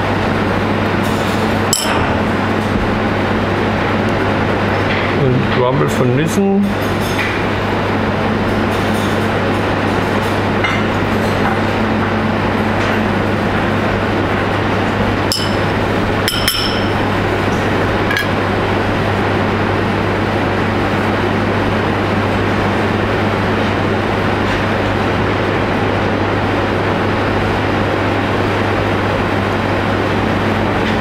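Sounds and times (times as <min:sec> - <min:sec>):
kitchen ventilation hum: 0:00.0 - 0:31.0
utensils clinking on plates: 0:15.3 - 0:17.1.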